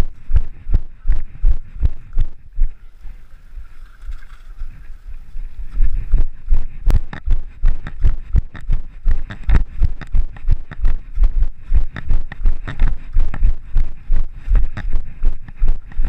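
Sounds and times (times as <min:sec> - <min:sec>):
running footsteps on dirt trail: 0:04.5 - 0:16.0.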